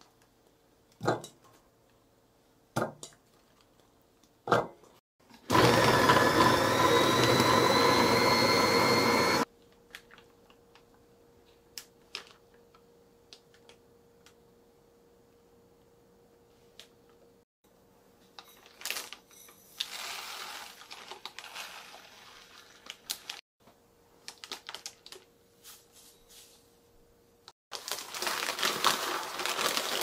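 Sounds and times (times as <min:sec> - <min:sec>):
food processor whining: 0:05.3 - 0:09.5.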